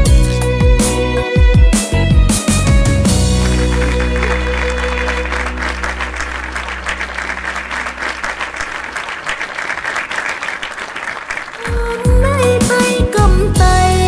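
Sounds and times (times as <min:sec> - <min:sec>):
band music: 0:00.0 - 0:09.1, 0:11.6 - 0:14.0
audience applause: 0:03.2 - 0:11.9.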